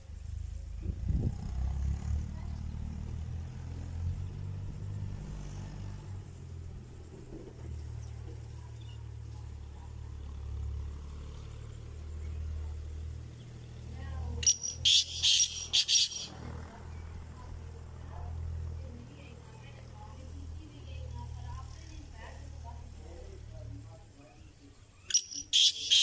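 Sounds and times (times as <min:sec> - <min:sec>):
bird calling harsh notes: 0:14.4 - 0:16.5, 0:25.1 - 0:26.0.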